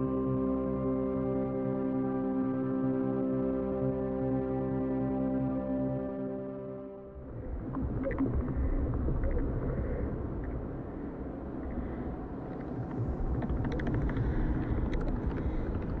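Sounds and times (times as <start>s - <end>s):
dense low rumbling: 7.2s - 16.0s
scattered crackles and clicks: 7.6s - 10.6s, 12.4s - 16.0s.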